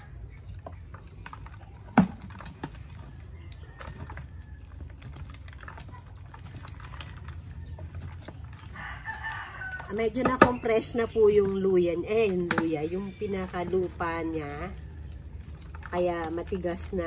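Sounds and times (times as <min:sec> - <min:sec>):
garden fork scraping soil: 0:00.0 - 0:17.0
rooster crowing: 0:03.0 - 0:05.0, 0:07.1 - 0:10.0.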